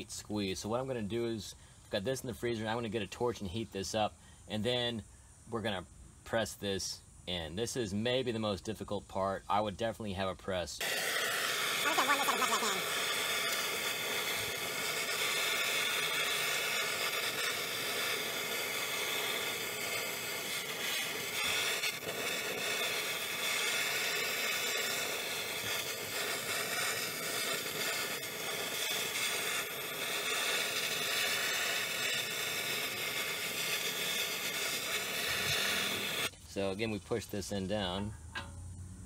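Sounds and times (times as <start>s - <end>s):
gas torch hissing: 10.8s - 36.4s.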